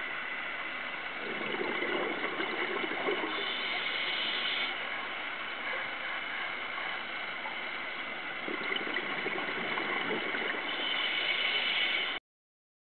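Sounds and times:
underwater bubbling: 0:00.1 - 0:05.7, 0:06.6 - 0:12.2
diver breathing through regulator: 0:01.4 - 0:04.8.

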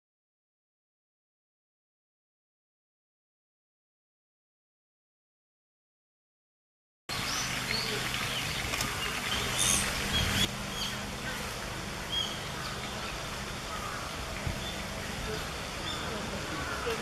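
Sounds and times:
birds chirping: 0:07.1 - 0:17.0
steady hiss: 0:07.1 - 0:17.0.

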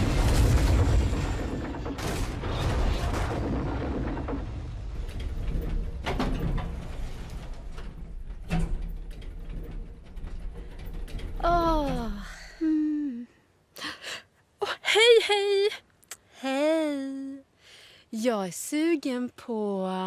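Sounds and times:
elevator doors sliding: 0:00.0 - 0:12.3
elevator rumbling: 0:00.0 - 0:12.6.

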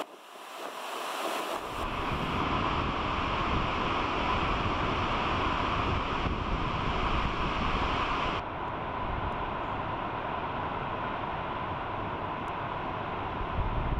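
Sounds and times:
water rushing down spillway: 0:00.0 - 0:08.4.

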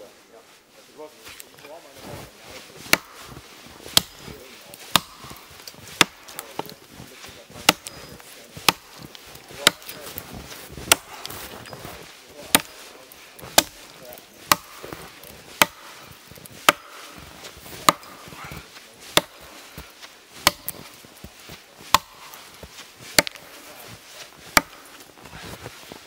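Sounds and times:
axe chopping wood: 0:02.8 - 0:06.8, 0:07.5 - 0:11.6, 0:12.4 - 0:12.8, 0:13.4 - 0:21.0, 0:21.8 - 0:23.6, 0:24.4 - 0:25.0.

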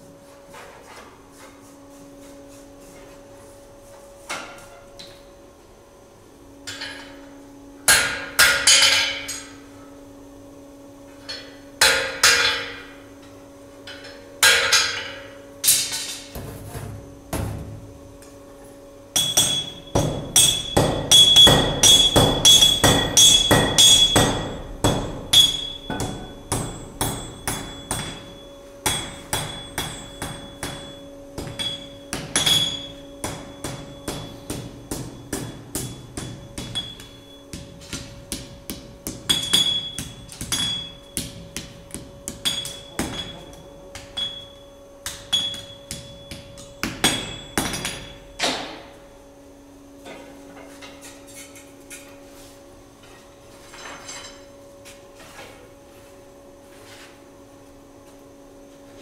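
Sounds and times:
hammer striking iron on anvil: 0:07.9 - 0:09.6, 0:11.3 - 0:13.0, 0:13.9 - 0:16.2, 0:19.1 - 0:48.8.

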